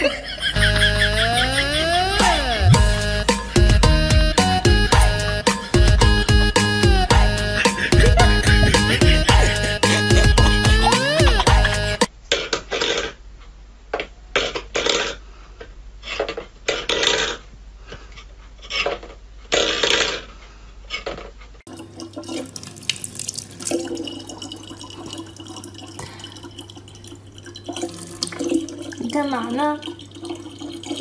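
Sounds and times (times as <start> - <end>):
tap water running into bottle: 21.7 - 31.0.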